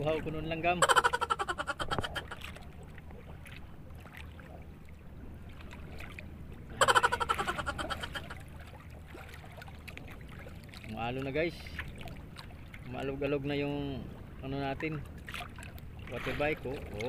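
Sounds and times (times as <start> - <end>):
sea water washing: 0.0 - 13.3
wind: 0.0 - 17.0.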